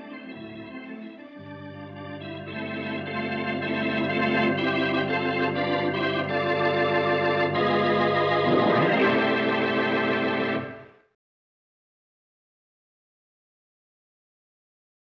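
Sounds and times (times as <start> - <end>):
organ music with held chords: 0.0 - 11.0.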